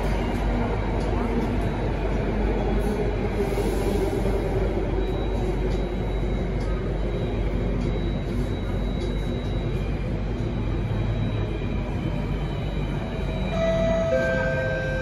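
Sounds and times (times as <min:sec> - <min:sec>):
metro train wheels rumbling: 0:00.0 - 0:15.0.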